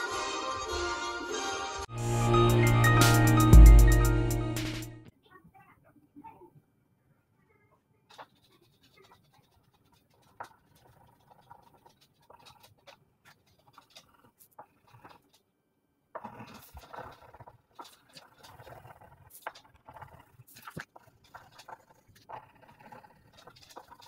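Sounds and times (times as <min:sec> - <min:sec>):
pencil scratching on paper: 0:08.1 - 0:15.5, 0:16.2 - 0:24.0.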